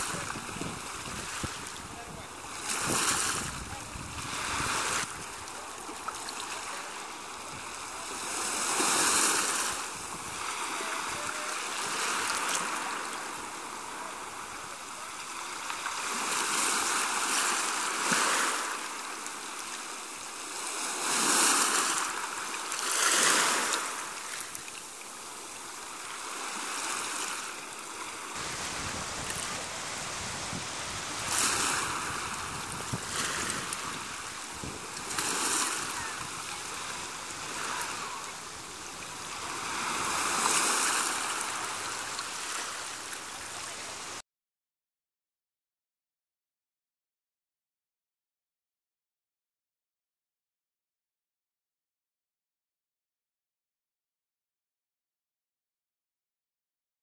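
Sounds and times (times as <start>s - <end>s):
small waves washing onto shore: 0.0s - 44.2s.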